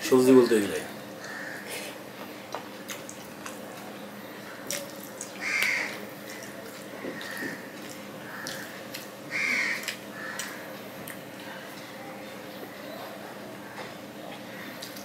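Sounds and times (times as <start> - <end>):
wet chewing: 2.5 - 12.0, 14.5 - 15.0.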